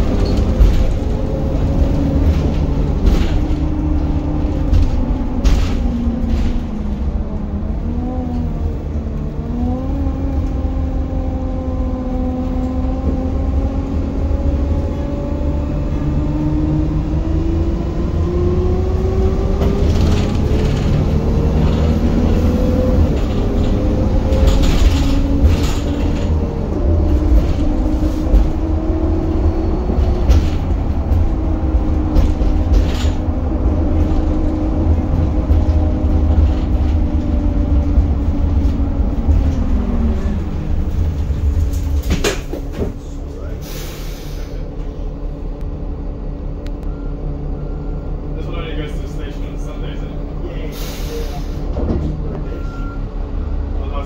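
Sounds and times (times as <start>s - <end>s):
interior rattles and knocks: 0.0s - 7.1s, 19.4s - 43.2s
bus diesel engine accelerating: 0.0s - 54.0s.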